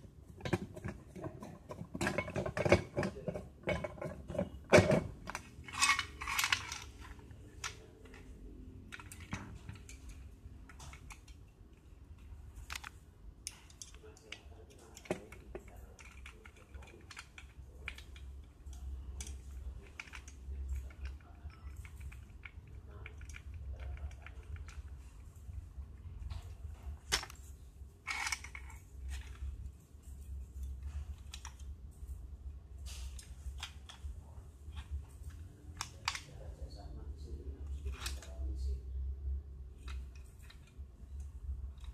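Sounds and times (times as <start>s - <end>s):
low steady hum: 0.0s - 41.9s
metal parts clicking and knocking: 0.3s - 31.7s.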